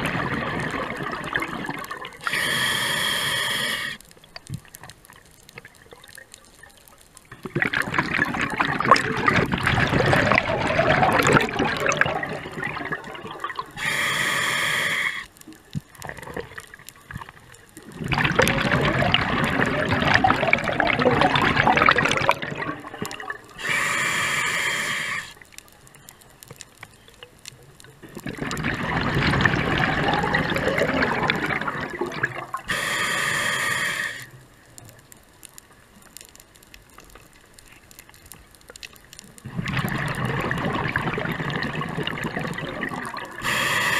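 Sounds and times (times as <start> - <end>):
exhaled bubbles rushing: 0.0 - 2.4, 7.4 - 13.8, 17.3 - 23.6, 28.0 - 32.7, 39.4 - 43.4
regulator hiss on inhale: 2.2 - 4.1, 13.8 - 15.4, 23.6 - 25.4, 32.6 - 34.4, 43.4 - 43.9.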